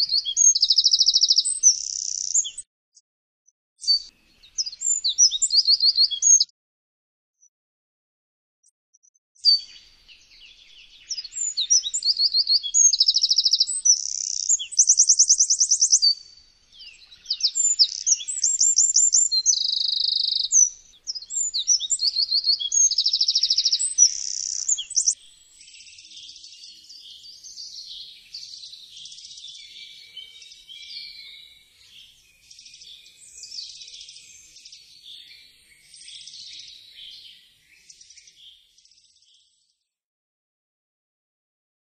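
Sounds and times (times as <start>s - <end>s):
faint high twittering: 0.0s - 2.6s, 9.4s - 26.6s
wren singing trills: 0.0s - 2.6s, 3.8s - 6.5s, 9.4s - 39.6s.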